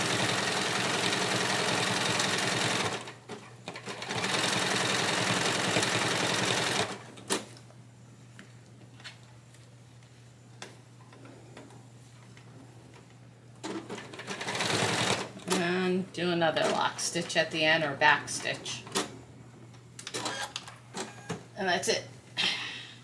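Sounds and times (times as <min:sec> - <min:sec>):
sewing machine stitching: 0:00.0 - 0:07.0, 0:13.6 - 0:15.6.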